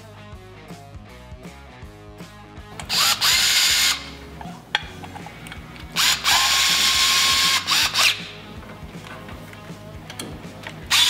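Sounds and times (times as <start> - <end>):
cordless drill whining: 2.8 - 4.2, 5.8 - 8.4, 10.8 - 11.0
drill click: 2.8 - 11.0.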